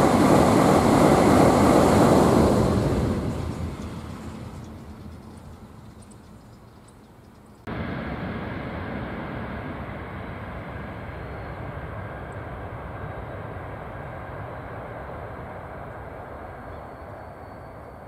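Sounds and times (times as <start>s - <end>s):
train rumbling across a steel bridge: 0.0s - 18.0s.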